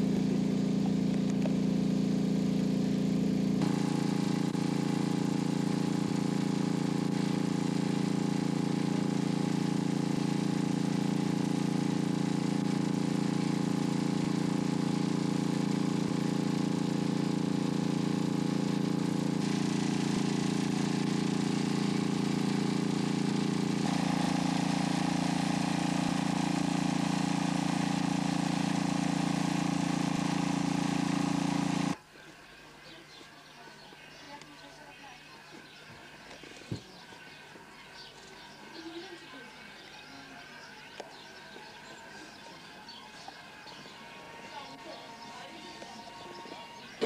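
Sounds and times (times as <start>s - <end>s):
engine idling: 0.0s - 32.0s.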